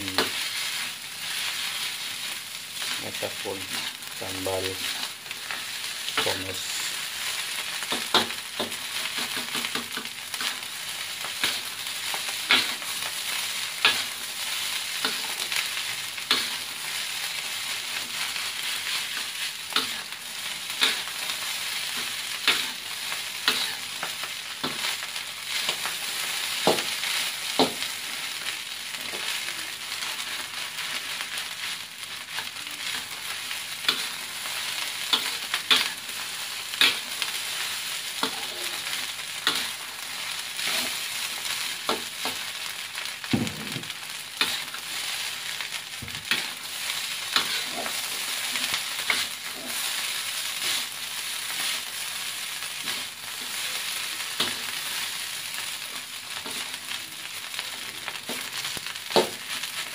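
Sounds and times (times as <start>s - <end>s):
rice sizzling in a wok: 0.0s - 59.9s
metal spatula scraping wok: 23.4s - 23.8s, 46.3s - 46.6s, 47.3s - 49.9s.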